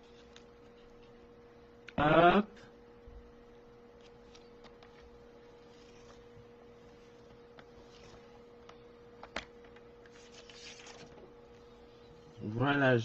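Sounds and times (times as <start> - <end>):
faint electrical hum: 0.0 - 13.0
paper rustling: 4.0 - 11.3.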